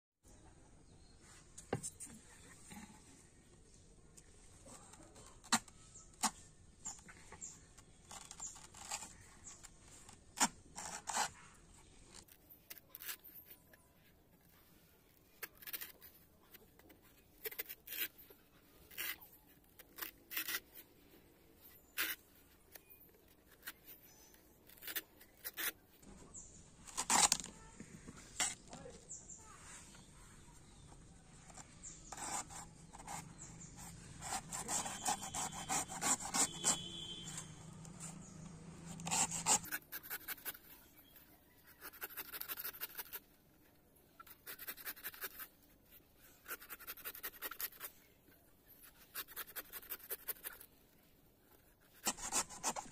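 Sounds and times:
knife chopping coconut husk: 34.4s - 37.3s.

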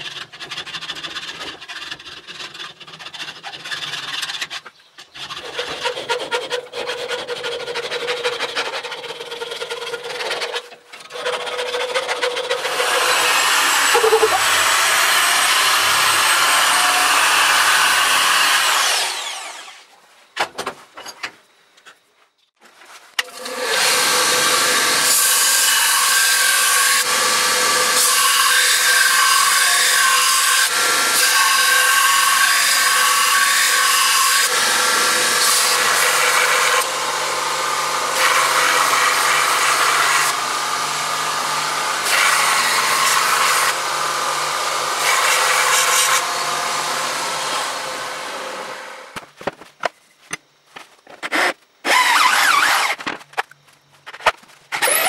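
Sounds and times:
file rasping on steel: 0.0s - 14.6s
belt grinder grinding steel: 0.0s - 19.9s, 23.3s - 48.1s, 51.2s - 53.1s, 54.8s - 55.0s
power drill spinning: 5.2s - 19.9s, 51.0s - 53.3s, 54.7s - 55.0s.

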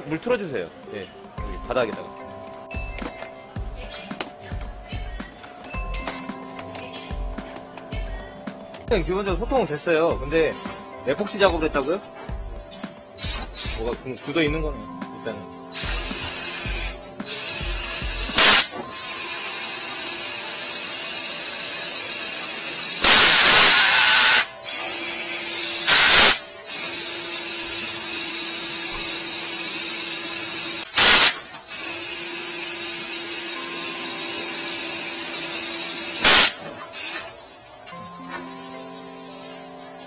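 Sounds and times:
drain cleaning machine whirring: 15.7s - 40.0s.

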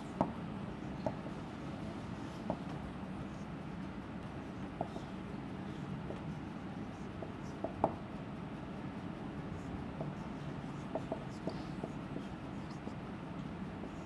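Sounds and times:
low room hum: 0.0s - 14.0s
marker squeaking on whiteboard: 9.6s - 13.1s.

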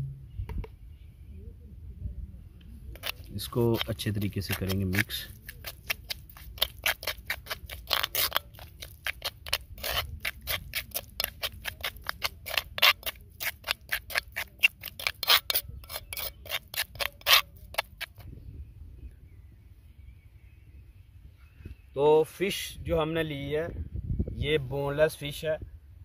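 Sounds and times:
metal spoon scraping clay bowl: 2.9s - 18.2s.

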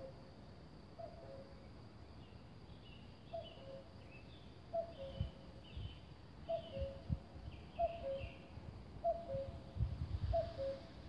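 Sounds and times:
cuckoo calling: 4.7s - 5.4s, 6.5s - 7.1s, 7.8s - 8.4s, 9.0s - 9.6s, 10.3s - 10.9s.

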